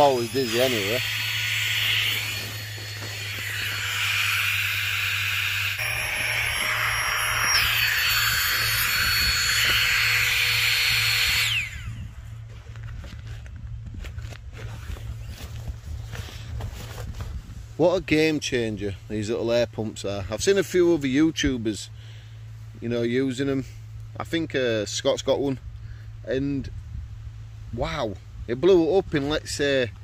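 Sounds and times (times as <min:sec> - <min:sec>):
air pump whining: 0:00.0 - 0:18.7.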